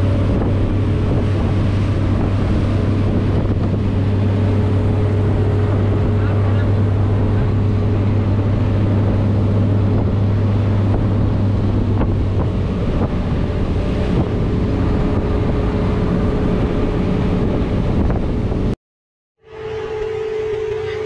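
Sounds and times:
motorboat engine running: 0.0 - 18.8, 19.4 - 21.0
rush of boat wake: 0.0 - 18.8, 19.4 - 21.0
wind buffeting microphone: 0.0 - 18.8.

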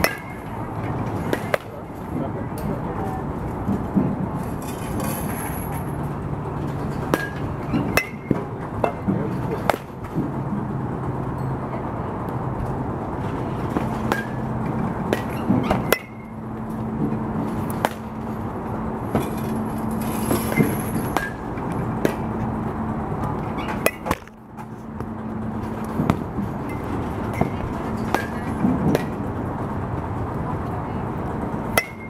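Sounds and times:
baseball bat cracking balls: 0.0 - 2.0, 5.6 - 10.7, 12.6 - 29.4
low machine hum: 0.0 - 32.0.

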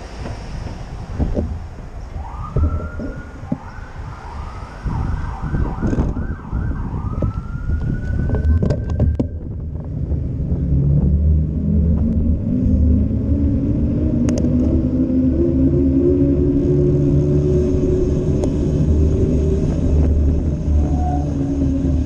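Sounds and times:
cars passing: 0.0 - 22.0
low traffic rumble: 0.0 - 22.0
emergency vehicle siren: 2.0 - 9.8, 11.4 - 22.0.

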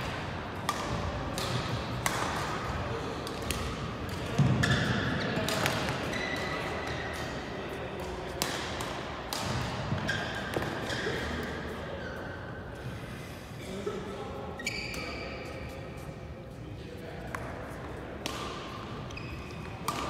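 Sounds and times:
racket striking shuttlecock: 0.0 - 6.0, 8.0 - 9.8
court shoes squeaking: 0.0 - 12.9, 14.4 - 16.2, 17.2 - 20.0.

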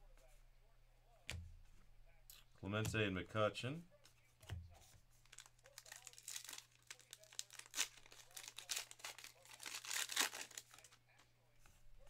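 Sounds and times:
card pack wrapper crinkling and tearing: 5.2 - 11.0.

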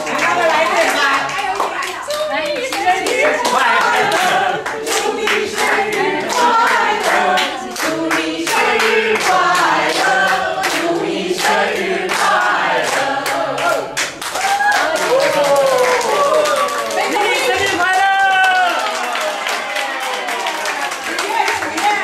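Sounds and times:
group singing together: 0.0 - 15.4
hands clapping along: 0.0 - 22.0.

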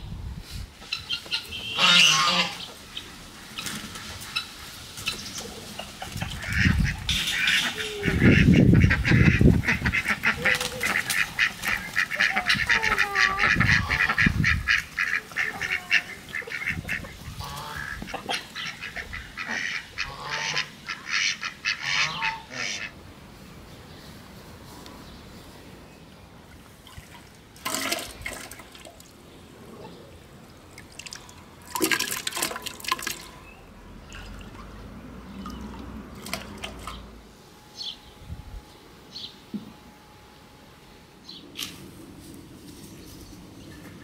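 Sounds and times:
chickens clucking: 0.8 - 23.0
ducks quacking: 0.9 - 3.0, 3.6 - 23.0.

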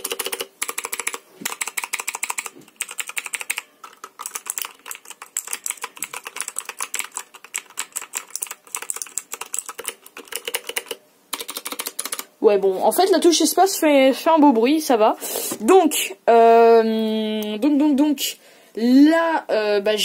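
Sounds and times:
keyboard keys clicking: 0.0 - 12.3.

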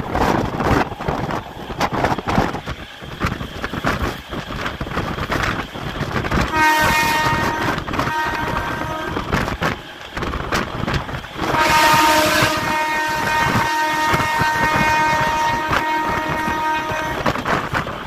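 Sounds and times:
train wheels clattering on rails: 0.0 - 18.0
wind on microphone: 0.0 - 18.0
train horn: 6.4 - 9.6, 11.4 - 17.7.

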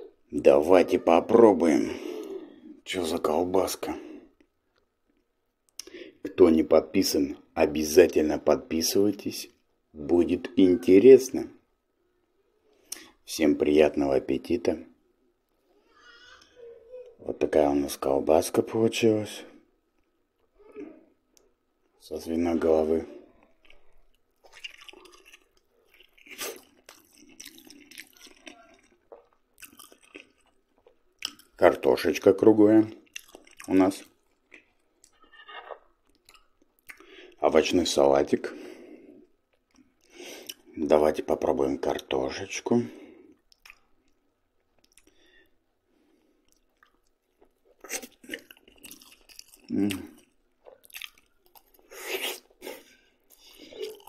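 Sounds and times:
person chewing food: 23.3 - 31.6, 33.0 - 37.4, 43.3 - 54.0
crunchy bites: 24.4 - 31.5.

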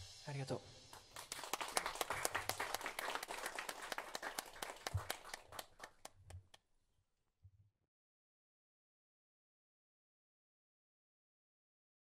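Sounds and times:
audience applauding: 0.9 - 6.6.

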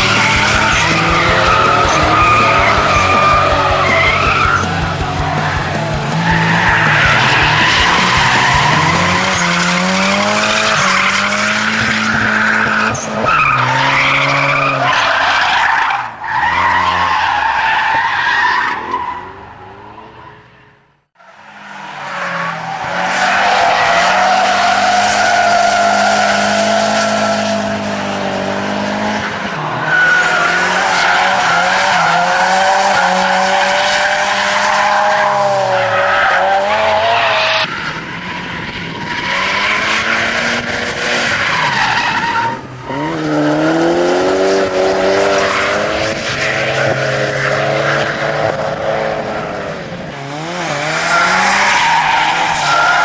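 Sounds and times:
tyre squeal: 0.0 - 19.3
car engines revving: 0.0 - 53.0.

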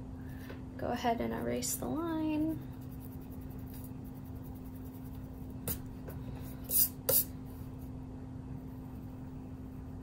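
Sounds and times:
pencil and eraser scratching paper: 2.5 - 7.3.

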